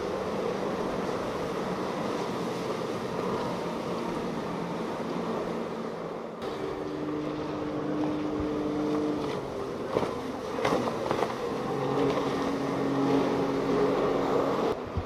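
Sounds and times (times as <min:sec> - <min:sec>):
hull rushing through water: 0:00.0 - 0:15.0
outboard motors running at speed: 0:00.0 - 0:15.0.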